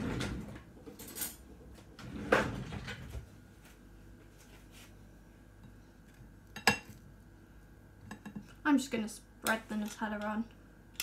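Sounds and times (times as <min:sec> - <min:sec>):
kitchen drawer opening and shutting: 0:00.0 - 0:03.3.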